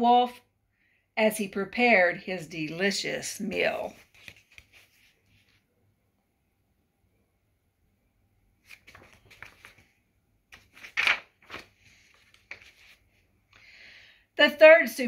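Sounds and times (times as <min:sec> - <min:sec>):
book pages turning: 0:03.8 - 0:05.6, 0:08.6 - 0:13.2.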